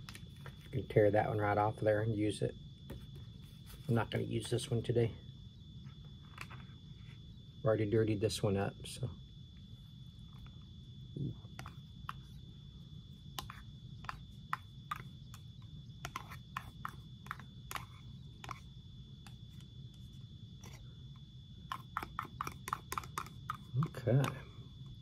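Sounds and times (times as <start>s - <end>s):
plastic fork clicking and scraping: 16.0s - 18.6s, 21.7s - 24.4s.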